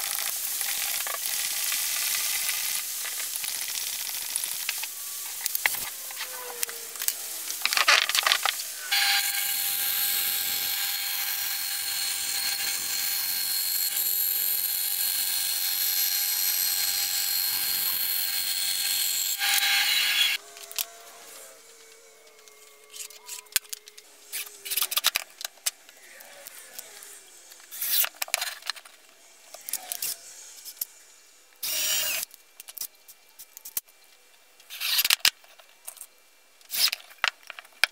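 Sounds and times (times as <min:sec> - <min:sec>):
bandsaw cutting plywood: 0:05.4 - 0:21.8.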